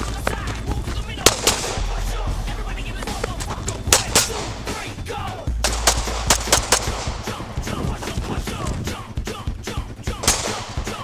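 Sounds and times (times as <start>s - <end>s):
background music with bass: 0.0s - 11.0s
pistol gunshots: 1.2s - 2.3s, 3.2s - 5.0s, 5.6s - 8.2s, 10.2s - 11.0s.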